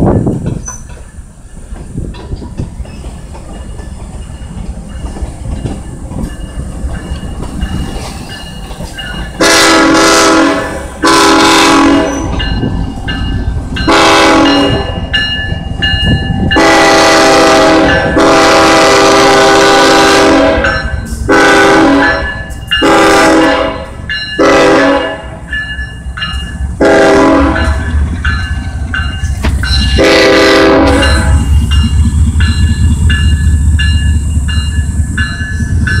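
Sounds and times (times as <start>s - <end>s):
train wheels clattering over rails: 0.0s - 24.8s, 25.4s - 36.0s
locomotive air horn blasts: 9.4s - 12.4s, 13.9s - 15.0s, 16.5s - 25.4s, 26.8s - 27.9s, 29.8s - 31.6s
diesel engine low rumble: 26.1s - 36.0s.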